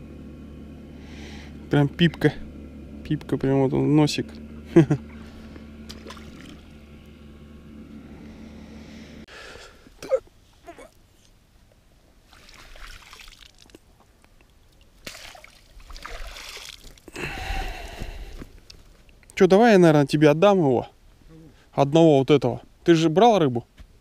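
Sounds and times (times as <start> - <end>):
water splashing and trickling: 5.8 - 6.8, 12.2 - 17.2.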